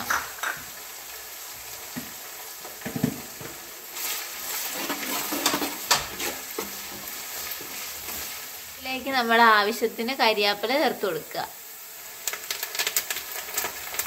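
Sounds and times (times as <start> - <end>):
garlic and ginger sizzling in oil: 0.0 - 14.0
ladle scraping and knocking pot: 4.7 - 7.8.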